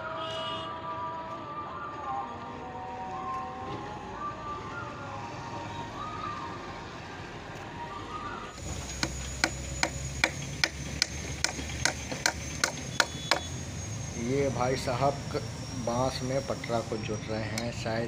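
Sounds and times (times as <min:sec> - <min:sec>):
hammer knocking on wood: 0:09.0 - 0:13.5.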